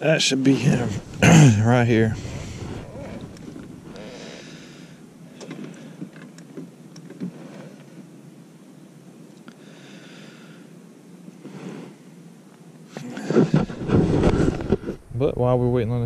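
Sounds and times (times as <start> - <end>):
man breathing: 0.8 - 6.1, 9.6 - 10.8
long hissing exhale: 1.0 - 6.1, 9.5 - 12.2.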